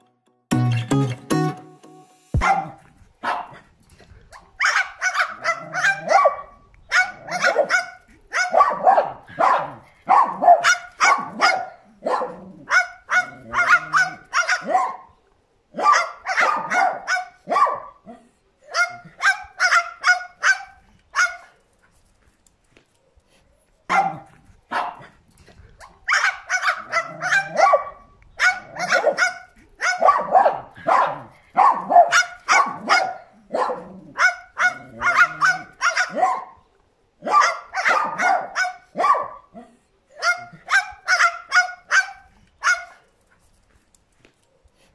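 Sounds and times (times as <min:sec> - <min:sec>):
small dog barking: 0:02.4 - 0:03.7, 0:04.3 - 0:21.6, 0:23.9 - 0:25.2, 0:25.8 - 0:43.0
cockatoo mimicking barks: 0:04.3 - 0:15.0, 0:25.8 - 0:36.5.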